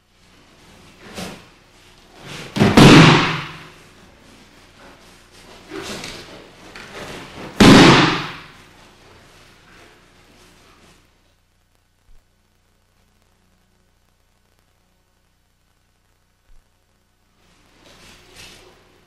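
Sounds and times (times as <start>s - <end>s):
body slapping onto mat: 2.2s - 3.8s, 5.7s - 8.6s.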